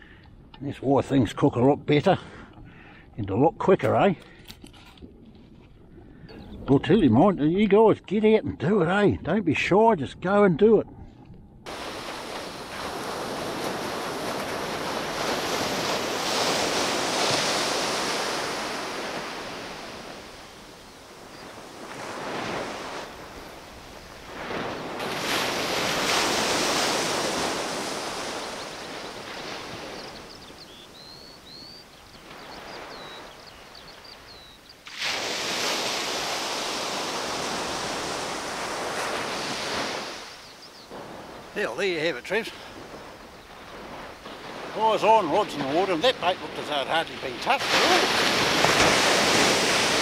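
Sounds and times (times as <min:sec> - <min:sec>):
surf breaking on beach: 0:11.6 - 0:50.0.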